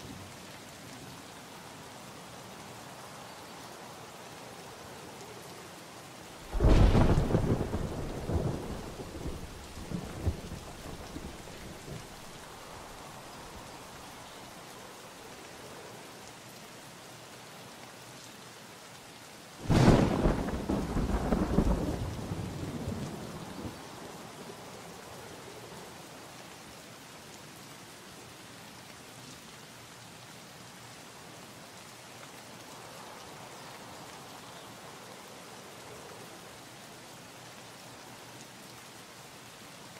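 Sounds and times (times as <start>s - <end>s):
steady rain: 0.0s - 39.9s
thunderclaps rumbling: 6.5s - 12.4s, 19.6s - 23.8s.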